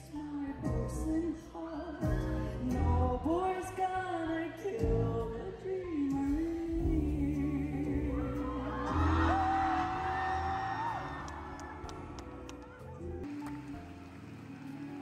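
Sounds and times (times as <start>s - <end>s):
woman singing into a microphone: 0.0s - 9.8s.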